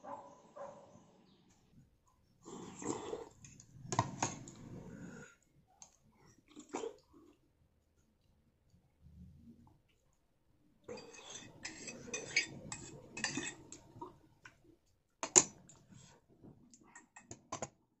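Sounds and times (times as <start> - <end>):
spoon scraping metal bowl: 10.8 - 14.2.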